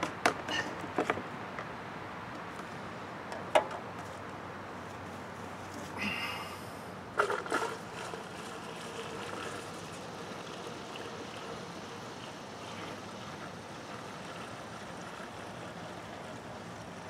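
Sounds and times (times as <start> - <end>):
fuel trickling through funnel: 7.1 - 17.0.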